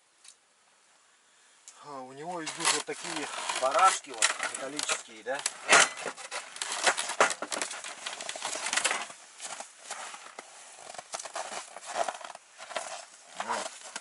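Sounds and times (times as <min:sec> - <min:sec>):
clothing rustling: 0:02.2 - 0:14.0
movement on snow: 0:02.2 - 0:14.0.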